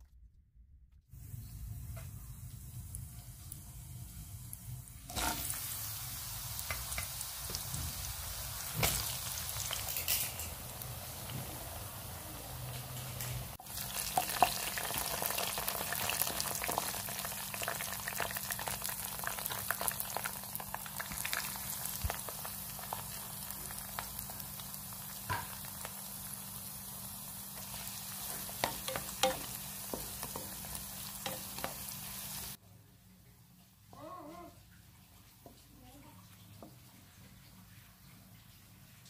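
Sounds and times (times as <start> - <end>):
food sizzling in a pan: 1.2 - 32.6.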